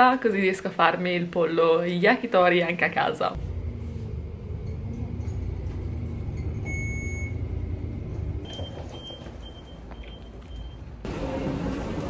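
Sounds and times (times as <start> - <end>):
bus engine rumble: 3.3 - 12.0
short high door beeps: 6.6 - 7.5, 8.4 - 10.9.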